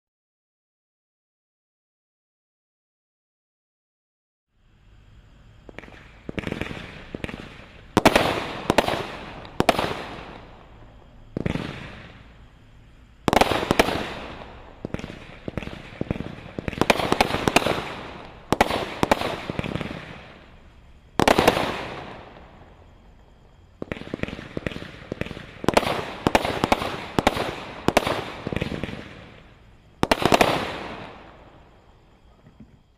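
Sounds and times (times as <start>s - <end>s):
firework shots firing: 5.6s - 31.9s.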